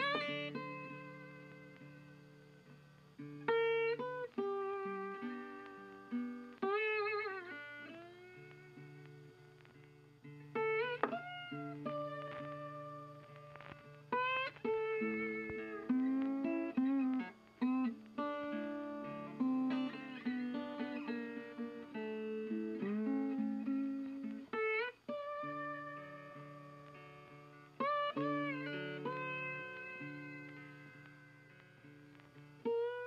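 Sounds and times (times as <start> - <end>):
plucked guitar melody: 0.0 - 33.0.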